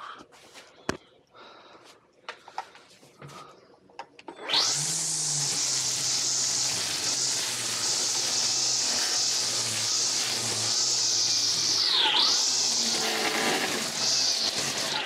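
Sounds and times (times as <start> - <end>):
string trimmer whirring: 4.2 - 15.0.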